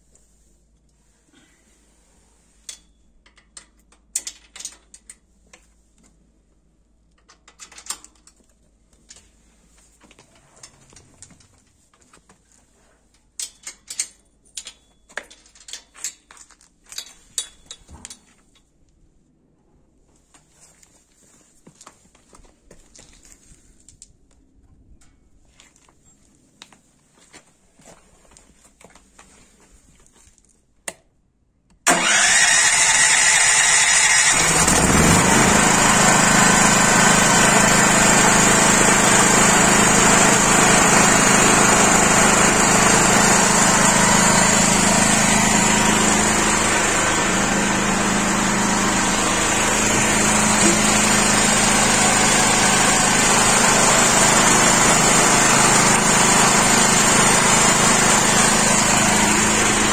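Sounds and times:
electric starter cranking engine: 0:31.9 - 0:59.9
generator engine running steadily: 0:31.9 - 0:59.9.

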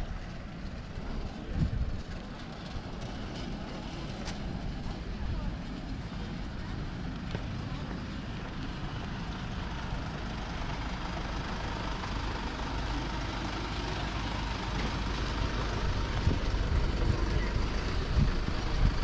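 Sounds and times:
vehicle engine rumbling: 0:00.0 - 0:19.0.

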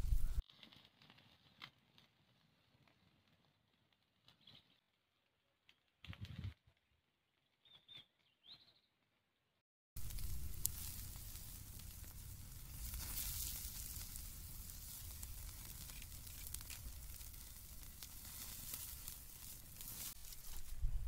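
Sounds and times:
chicken sizzling over flames: 0:00.0 - 0:06.2, 0:10.0 - 0:21.0
wood fire crackling: 0:00.0 - 0:07.4, 0:10.0 - 0:21.0
low rumble: 0:10.0 - 0:18.4.

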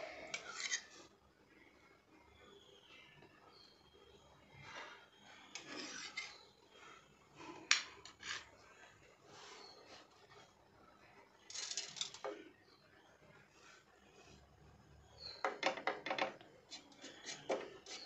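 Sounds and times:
metal spatula scraping on tawa: 0:00.0 - 0:01.1, 0:04.8 - 0:06.9, 0:08.0 - 0:08.5, 0:16.7 - 0:18.0.

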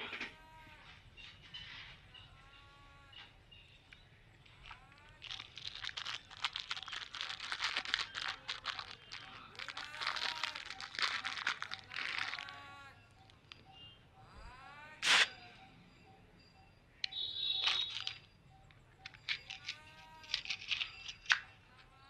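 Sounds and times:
bird calls: 0:00.0 - 0:05.1, 0:08.1 - 0:22.0
crinkling rustle: 0:04.4 - 0:13.8, 0:17.6 - 0:21.6.

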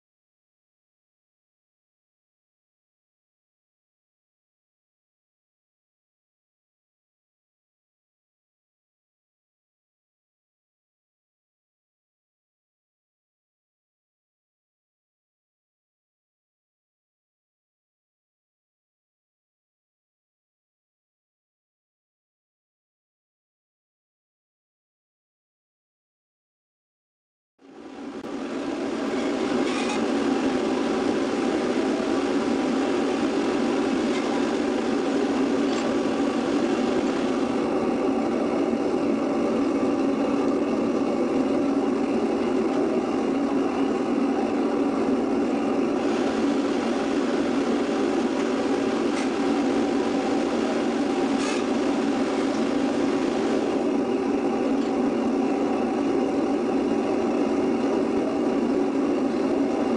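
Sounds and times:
furnace roaring with forced air: 0:27.6 - 0:59.9.

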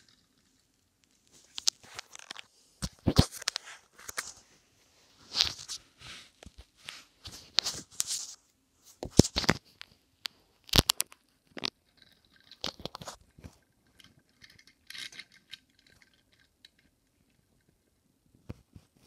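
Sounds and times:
toy car clicking and rolling: 0:13.8 - 0:16.9.

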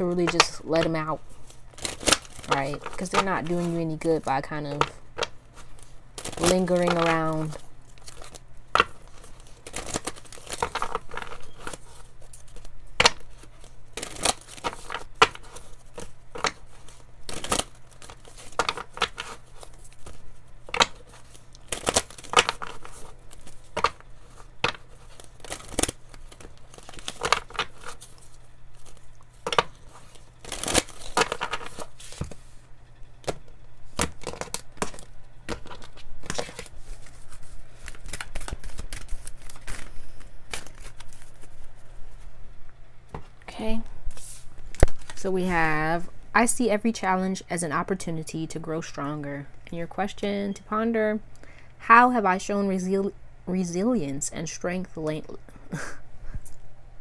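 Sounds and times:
cards being shuffled: 0:00.0 - 0:32.6, 0:33.2 - 0:42.3, 0:44.1 - 0:45.7.

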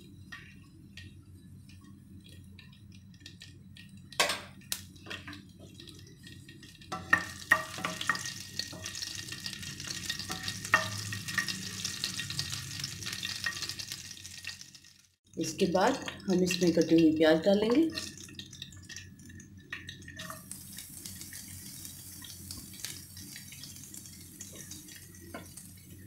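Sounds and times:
spices sizzling in hot oil: 0:00.0 - 0:26.0.

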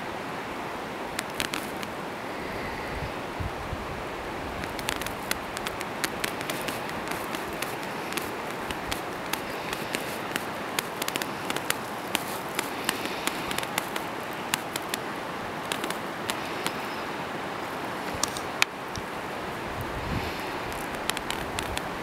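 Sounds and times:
steady background hiss: 0:00.0 - 0:22.0
wild boar snapping and crunching: 0:01.2 - 0:01.9, 0:04.6 - 0:16.9, 0:20.2 - 0:22.0.

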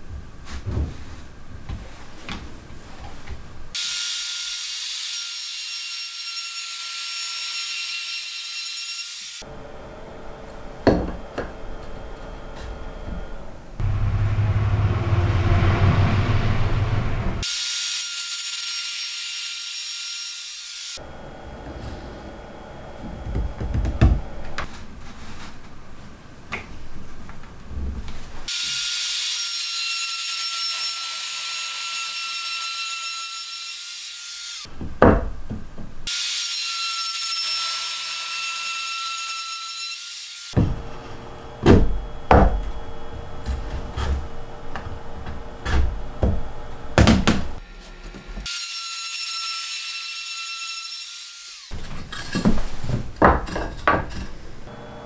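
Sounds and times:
trim router whining: 0:09.4 - 0:15.4, 0:21.0 - 0:24.7, 0:40.6 - 0:48.8, 0:54.7 - 0:55.0
wood rubbing on wood: 0:40.6 - 0:48.4
sharp knocks: 0:45.6 - 0:47.6.

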